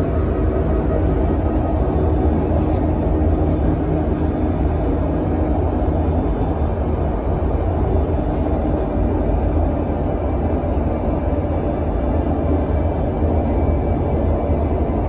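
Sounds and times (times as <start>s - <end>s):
bus cabin low rumble: 0.0s - 15.0s.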